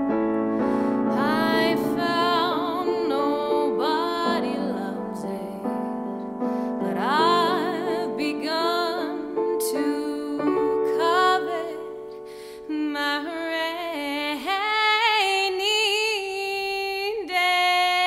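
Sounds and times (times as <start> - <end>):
electric keyboard chords: 0.0 - 12.4
woman singing: 0.6 - 18.0.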